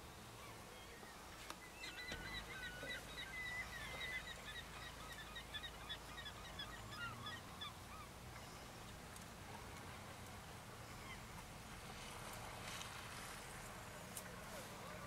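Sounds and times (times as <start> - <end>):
birds chirping: 0.0 - 11.9.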